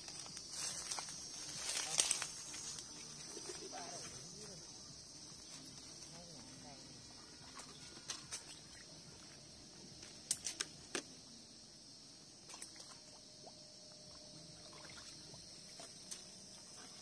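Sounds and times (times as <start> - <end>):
steady high-pitched hiss: 0.0 - 17.0
water sloshing and splashing: 14.1 - 17.0.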